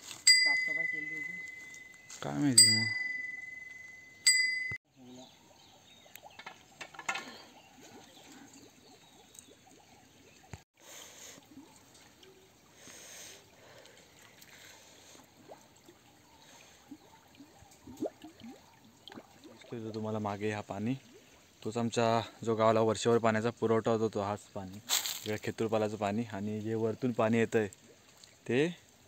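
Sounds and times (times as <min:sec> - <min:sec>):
quiet outdoor ambience: 0:00.0 - 0:29.0
metal bell ringing: 0:00.2 - 0:04.8.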